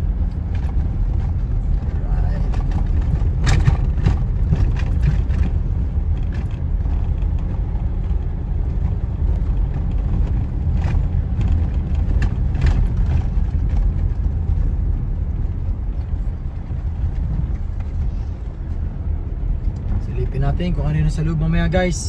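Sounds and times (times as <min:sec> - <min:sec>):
car engine and tyres rumbling: 0:00.0 - 0:22.0.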